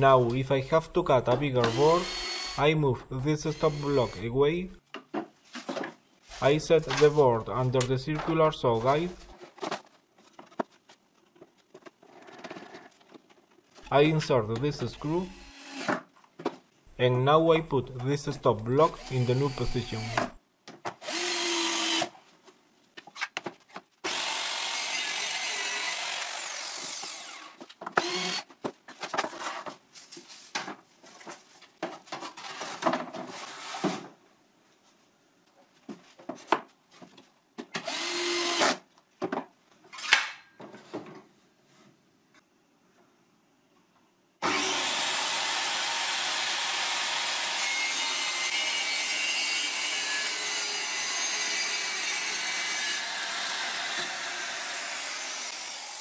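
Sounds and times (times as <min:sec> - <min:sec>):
cordless drill whirring: 0:01.6 - 0:02.6, 0:03.5 - 0:04.2, 0:15.3 - 0:15.9, 0:19.0 - 0:20.4, 0:21.0 - 0:22.1, 0:24.1 - 0:28.5, 0:37.8 - 0:38.7
boards and tools clattering: 0:26.8 - 0:34.2
circular saw cutting plywood: 0:44.4 - 0:56.0.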